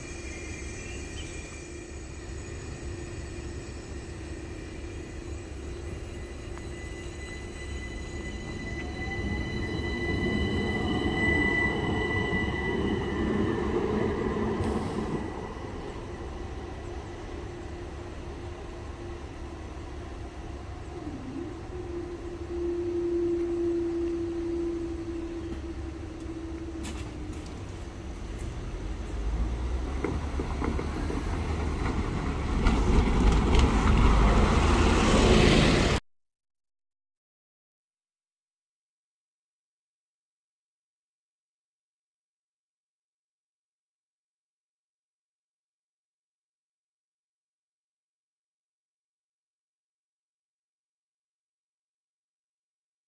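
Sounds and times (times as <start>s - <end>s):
electric train rumbling with whine: 0.0s - 36.0s
bus passing close: 8.2s - 21.0s, 25.4s - 36.0s.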